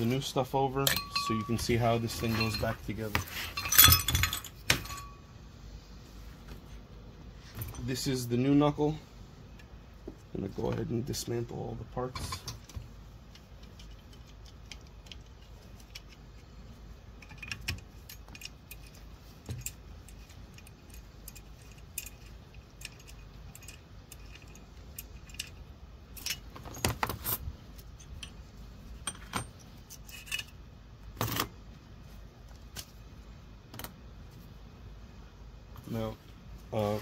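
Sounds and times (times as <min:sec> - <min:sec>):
metal parts clinking: 0:00.8 - 0:05.2, 0:17.1 - 0:31.5.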